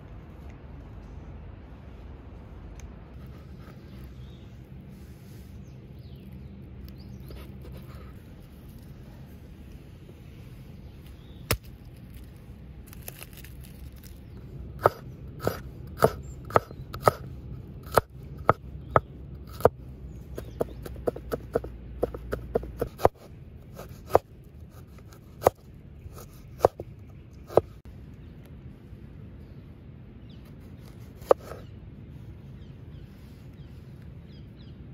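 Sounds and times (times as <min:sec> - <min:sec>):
cleaver chopping on wooden board: 0:14.8 - 0:17.2, 0:20.4 - 0:23.2.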